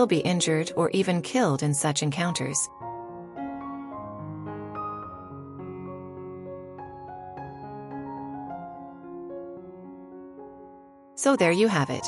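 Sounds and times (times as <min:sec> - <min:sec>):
soft slow melody: 0:02.5 - 0:11.2.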